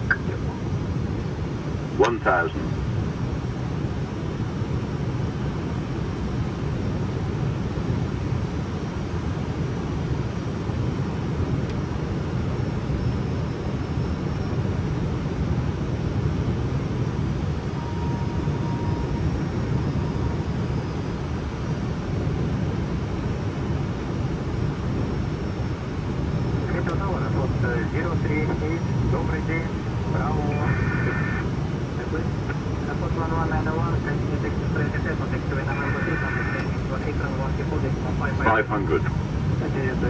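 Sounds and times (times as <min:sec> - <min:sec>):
airflow and aircraft engine roar: 0:00.0 - 0:40.0.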